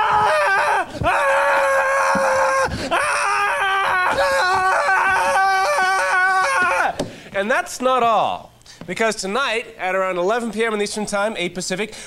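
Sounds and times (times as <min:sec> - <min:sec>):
man shrieking in falsetto: 0:00.0 - 0:07.0.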